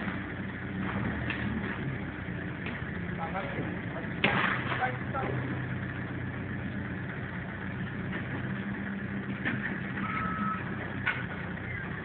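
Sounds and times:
forklift engine idling: 0.0s - 12.0s
short electronic beep: 10.0s - 10.8s.

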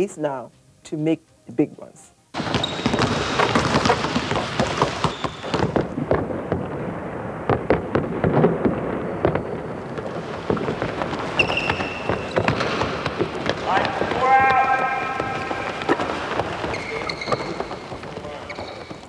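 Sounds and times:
sneakers squeaking: 2.4s - 6.0s, 9.2s - 19.0s
basketballs bouncing on court: 2.4s - 6.9s, 7.5s - 19.0s.

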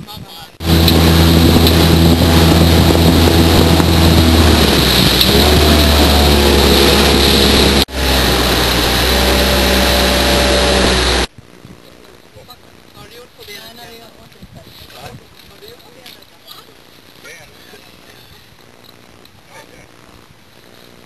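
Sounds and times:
wind and water rushing: 0.0s - 11.3s
motorboat engine running: 0.6s - 12.5s.

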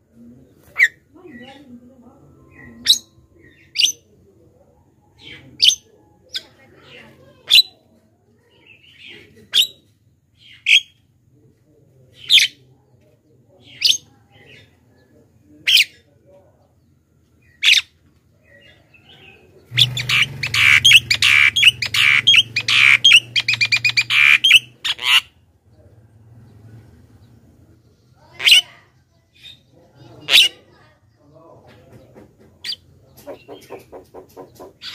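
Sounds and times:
myna rapid chattering: 19.7s - 25.2s, 28.2s - 29.0s, 31.8s - 34.9s
myna sharp calls: 19.7s - 25.4s, 28.2s - 29.6s, 30.2s - 30.7s.

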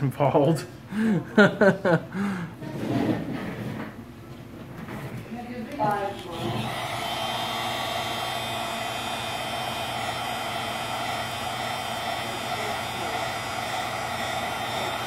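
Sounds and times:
heat gun blowing air: 5.9s - 15.0s.

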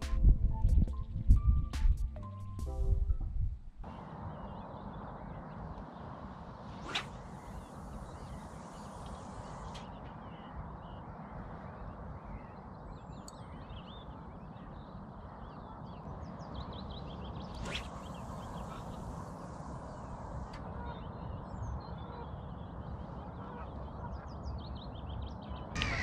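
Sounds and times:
small birds chirping: 3.8s - 26.0s
fishing rod cast swish: 6.7s - 7.7s, 17.6s - 18.9s.

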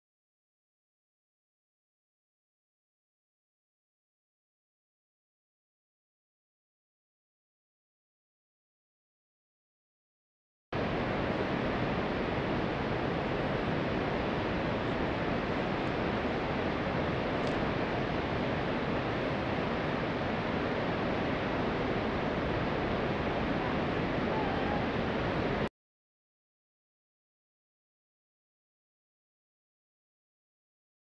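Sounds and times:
steady rushing noise: 10.8s - 25.7s.

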